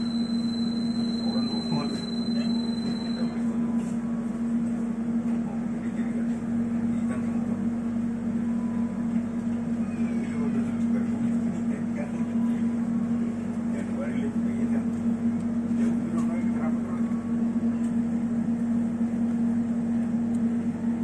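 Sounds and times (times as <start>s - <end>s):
high steady tone: 0.0s - 3.8s
train carriage low hum: 0.0s - 21.0s.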